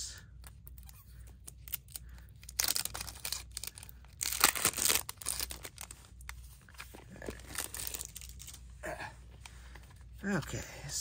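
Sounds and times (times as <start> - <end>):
plastic wrap tearing and crinkling: 0.7 - 8.6.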